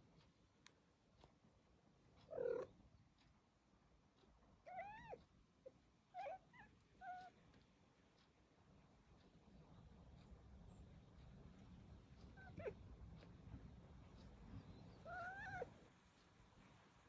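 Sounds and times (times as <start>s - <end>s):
cat chirping calls: 2.2s - 2.7s, 4.6s - 7.4s, 12.2s - 12.9s, 14.9s - 15.8s.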